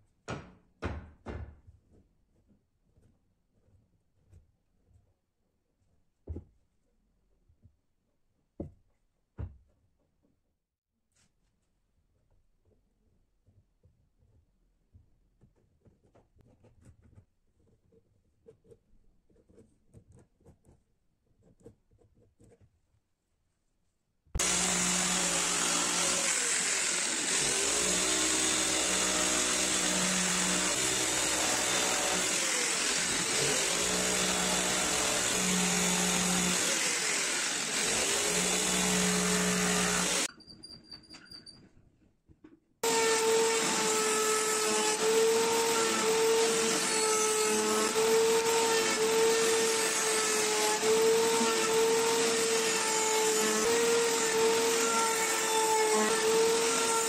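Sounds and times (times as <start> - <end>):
electric jigsaw cutting wood: 24.4 - 40.3, 42.8 - 57.0
router whining: 24.4 - 40.3, 42.8 - 57.0.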